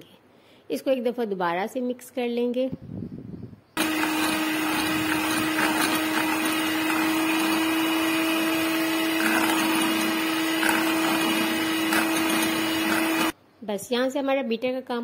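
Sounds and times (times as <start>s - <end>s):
electric hand mixer whining: 3.8s - 13.4s.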